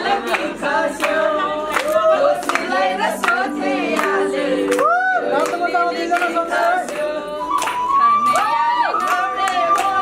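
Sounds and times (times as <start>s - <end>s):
group of voices singing: 0.0s - 8.1s.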